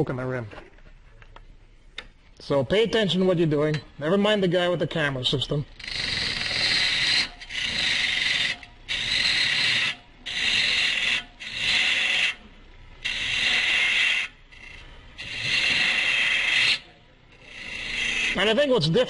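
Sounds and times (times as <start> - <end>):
gouge cutting wood on lathe: 5.8 - 18.7.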